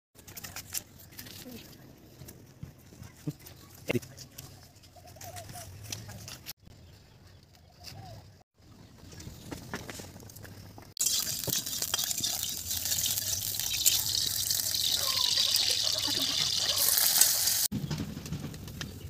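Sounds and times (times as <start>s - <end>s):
wood fire: 9.5s - 19.0s
pot of water boiling: 11.0s - 17.7s.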